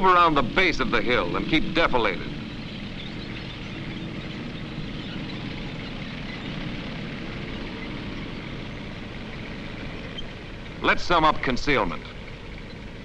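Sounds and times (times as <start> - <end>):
tank engines rumbling: 0.0 - 13.0.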